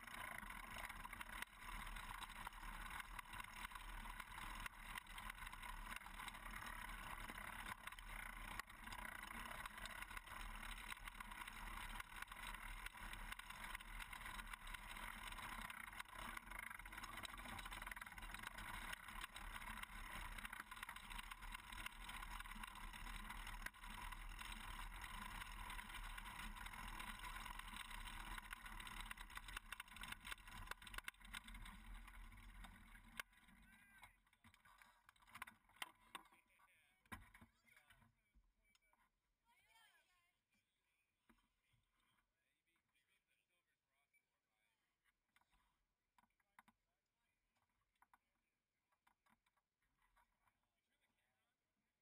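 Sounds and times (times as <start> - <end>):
buggy rattling while rolling: 0.0 - 36.4.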